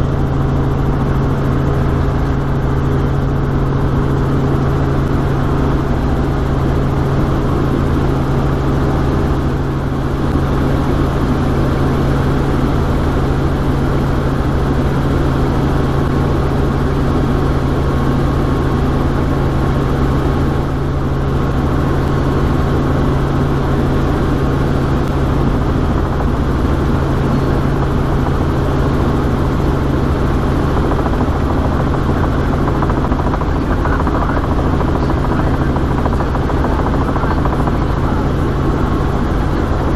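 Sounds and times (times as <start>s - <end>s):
helicopter engine and rotors droning: 0.0s - 39.9s.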